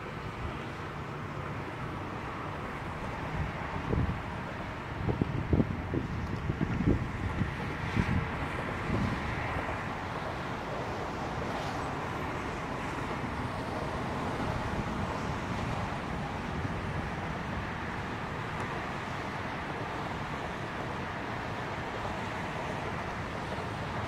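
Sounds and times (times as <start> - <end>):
distant highway traffic: 0.0 - 24.0
wind on microphone: 3.0 - 19.3.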